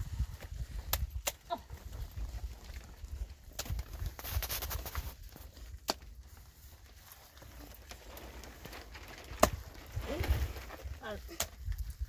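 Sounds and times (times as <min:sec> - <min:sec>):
wind rumble on microphone: 0:00.0 - 0:05.3, 0:08.8 - 0:12.0
footsteps crunching on stony ground: 0:00.0 - 0:12.0.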